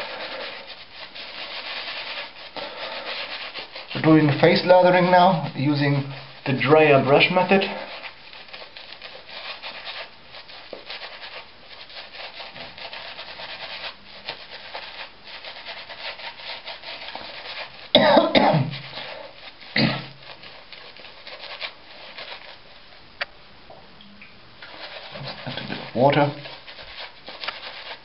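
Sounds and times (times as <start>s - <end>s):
shaving brush scratching on stubble: 0.0s - 22.8s, 24.6s - 28.0s
person coughing: 18.0s - 18.8s, 19.8s - 20.2s.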